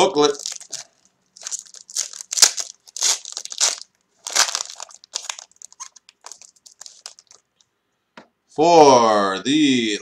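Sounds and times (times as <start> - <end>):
foil wrapper crinkling: 0.2 - 7.5.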